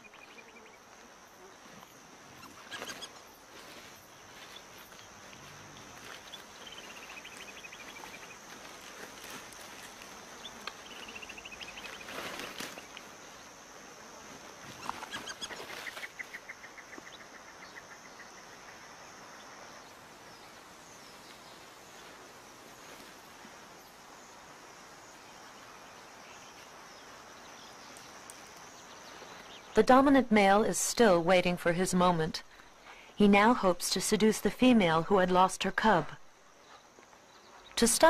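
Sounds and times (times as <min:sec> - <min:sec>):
high insect buzz: 0:00.0 - 0:30.4
rustling noise: 0:02.6 - 0:13.4, 0:14.2 - 0:16.4, 0:21.1 - 0:23.8.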